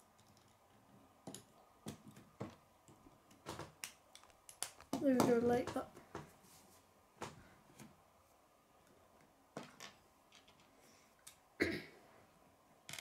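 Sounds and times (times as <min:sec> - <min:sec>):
plastic pieces clicking on table: 0:03.3 - 0:05.8.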